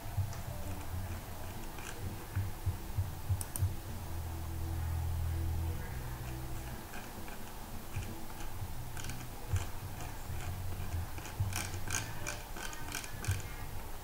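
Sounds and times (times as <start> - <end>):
low hum: 0.0 - 14.0
computer keyboard and mouse clicks: 0.2 - 2.5, 3.4 - 3.7, 6.2 - 13.6.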